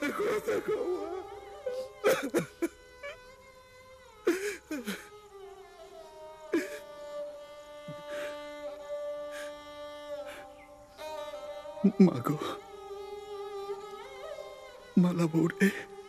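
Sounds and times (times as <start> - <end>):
slow violin music: 0.0 - 16.0
man sobbing gasps: 4.3 - 5.1.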